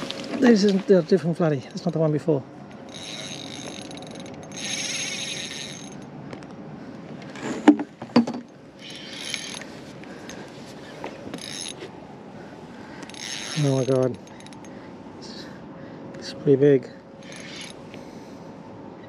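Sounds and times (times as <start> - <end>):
fishing reel cranking: 2.7 - 6.1, 8.8 - 9.7, 11.3 - 11.8, 13.0 - 14.7, 17.2 - 17.8.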